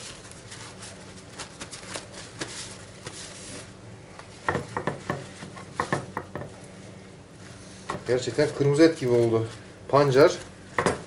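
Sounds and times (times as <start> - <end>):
paper towels crinkling: 0.0 - 3.8, 8.0 - 10.6.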